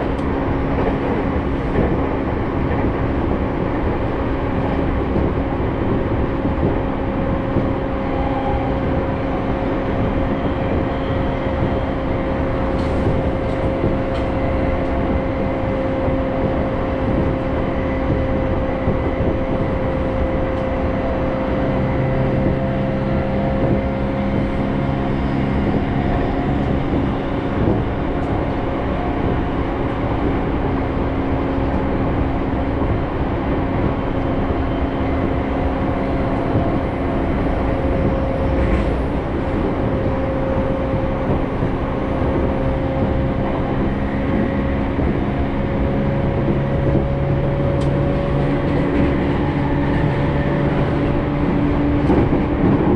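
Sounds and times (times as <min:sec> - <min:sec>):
train wheels rumbling on rails: 0:00.0 - 0:52.9
train motor hum: 0:34.6 - 0:52.9.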